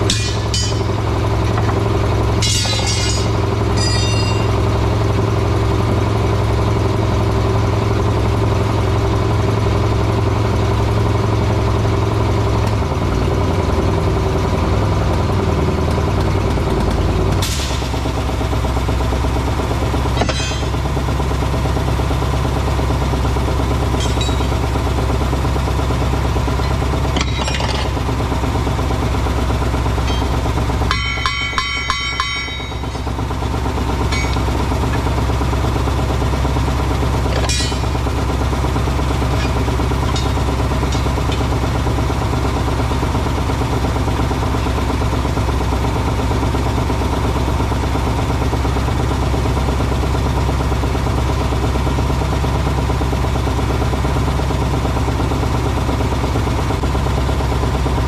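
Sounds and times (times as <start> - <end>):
tire knocks and clinks: 0.0 - 4.9, 20.0 - 21.2, 23.8 - 25.0, 26.0 - 28.8, 29.6 - 42.6
engine idling: 0.0 - 58.0.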